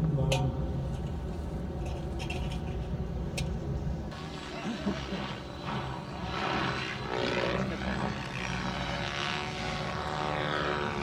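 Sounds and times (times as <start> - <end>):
model helicopter hum: 4.1 - 11.0
rotor and turbine rush: 4.1 - 11.0.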